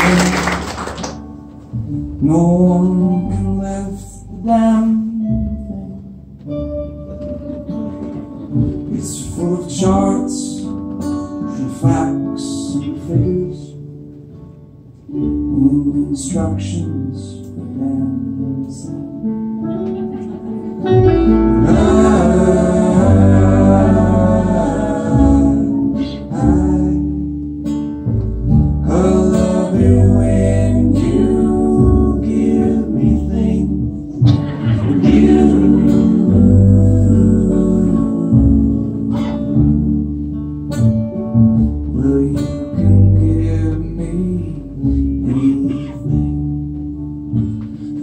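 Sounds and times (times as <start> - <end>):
upright bass: 0.0 - 48.0
strummed acoustic guitar: 1.2 - 48.0
man singing: 2.1 - 5.7, 8.8 - 10.8, 11.4 - 13.8, 15.4 - 19.0, 21.6 - 27.3, 28.8 - 40.1, 41.8 - 46.3.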